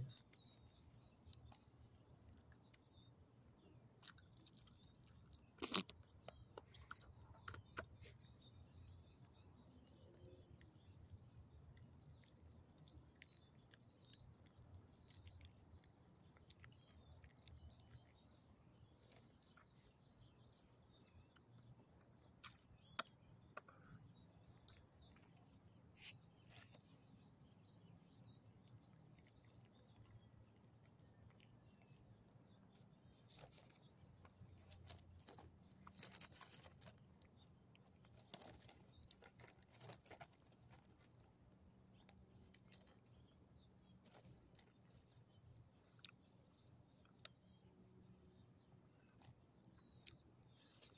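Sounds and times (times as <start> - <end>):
small dog chewing and licking: 11.5 - 20.5.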